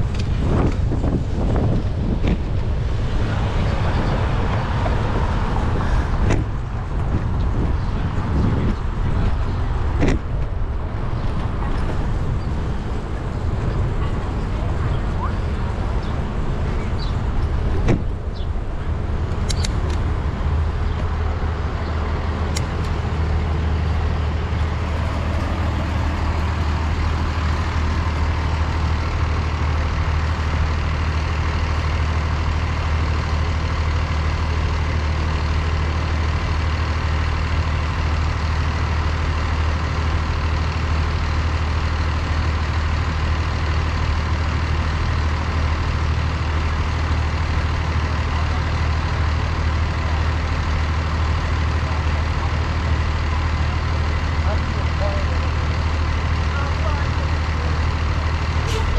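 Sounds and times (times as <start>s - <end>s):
street traffic hum: 0.0s - 58.9s
short clicks: 19.3s - 20.0s.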